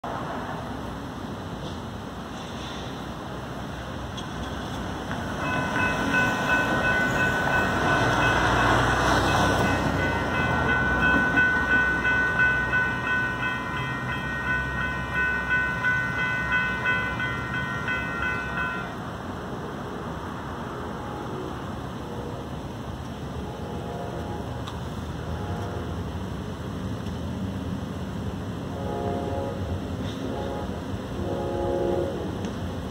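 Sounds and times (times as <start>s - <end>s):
railroad crossing bells ringing: 4.1s - 19.4s.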